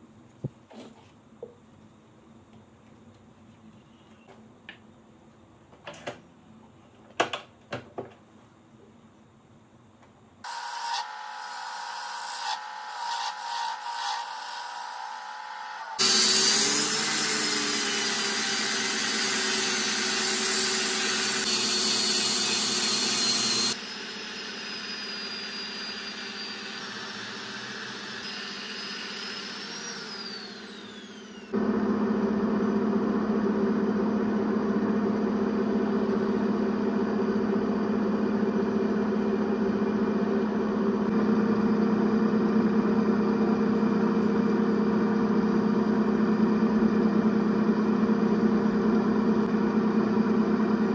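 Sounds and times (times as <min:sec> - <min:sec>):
angle grinder whining: 0:10.5 - 0:32.6
motor winding down: 0:15.0 - 0:31.7.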